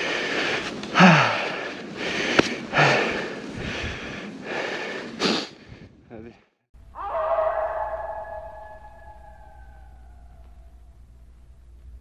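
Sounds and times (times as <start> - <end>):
person panting heavily: 0.0 - 6.0.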